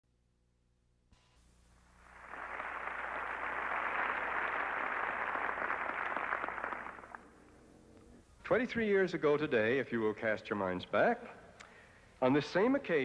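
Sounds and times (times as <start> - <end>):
large audience applauding: 2.0 - 7.5.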